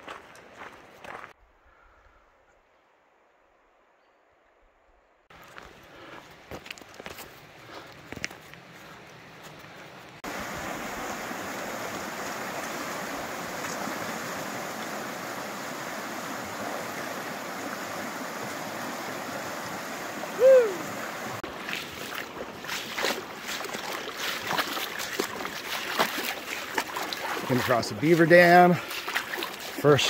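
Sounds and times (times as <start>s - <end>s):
stream rushing: 10.1s - 30.0s
splashing steps in water: 21.4s - 30.0s.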